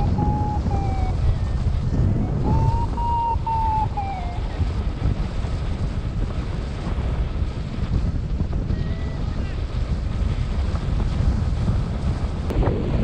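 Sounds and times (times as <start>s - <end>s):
variometer beeping: 0.0s - 1.3s, 2.2s - 4.6s
wind buffeting microphone: 0.0s - 13.0s.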